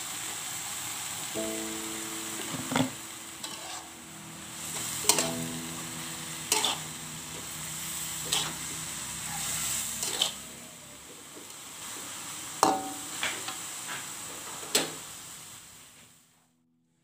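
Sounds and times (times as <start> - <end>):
greens sizzling in a wok: 0.0 - 16.3
metal spatula scraping pan: 3.4 - 3.9, 6.5 - 6.8, 8.2 - 8.6, 9.3 - 10.4.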